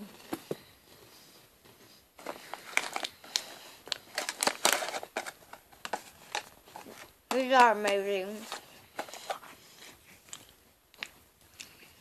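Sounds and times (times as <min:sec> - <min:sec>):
plastic wrapper crackling: 0:02.2 - 0:09.4.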